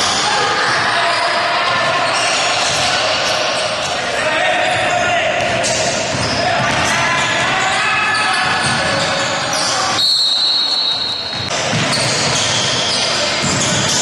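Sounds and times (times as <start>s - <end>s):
basketball bouncing on court: 4.6s - 9.5s, 10.6s - 14.0s
referee's whistle: 9.5s - 13.2s.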